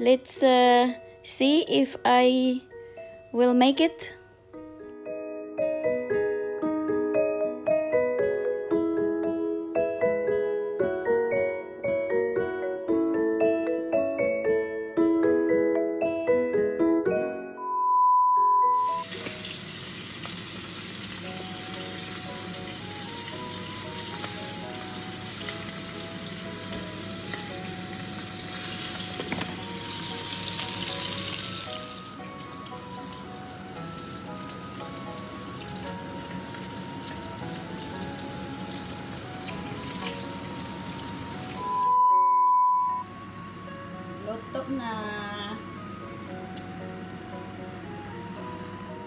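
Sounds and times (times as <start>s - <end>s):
test-tone beep: 17.6s - 19.0s, 41.6s - 43.1s
food sizzling in frying pan: 18.7s - 41.9s.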